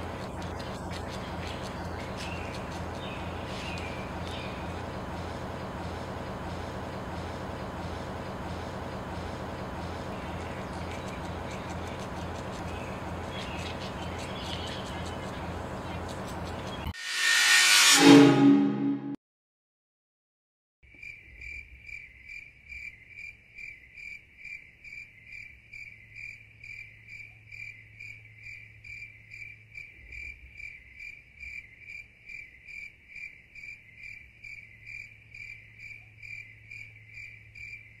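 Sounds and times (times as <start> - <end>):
faint low hum: 0.0 - 16.9.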